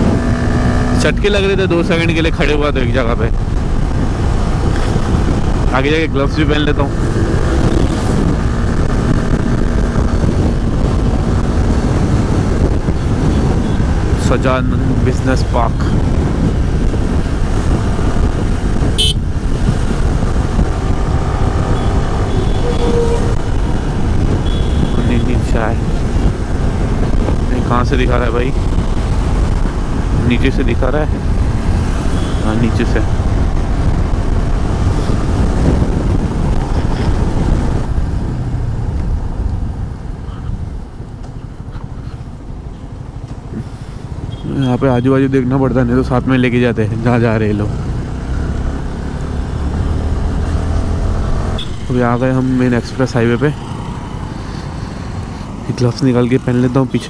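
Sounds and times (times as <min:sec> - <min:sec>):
motorcycle engine rumble: 0:00.0 - 0:44.5, 0:47.0 - 0:57.0
wind on microphone: 0:03.3 - 0:06.1, 0:06.7 - 0:15.1, 0:15.7 - 0:27.6, 0:33.0 - 0:44.3
short high horn toot: 0:22.4 - 0:23.4, 0:51.6 - 0:51.9.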